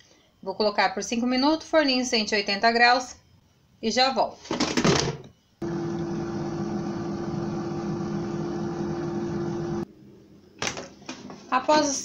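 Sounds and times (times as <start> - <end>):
air fryer fan whirring: 5.6 - 9.9.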